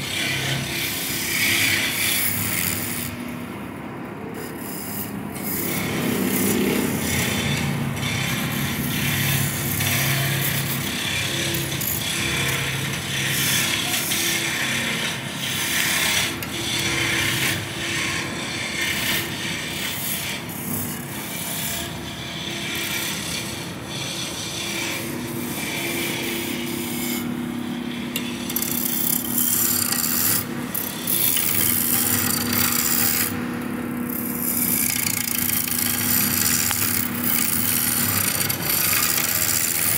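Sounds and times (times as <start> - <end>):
tool scraping spinning wood: 0.0 - 39.9
wood lathe humming: 22.4 - 39.9.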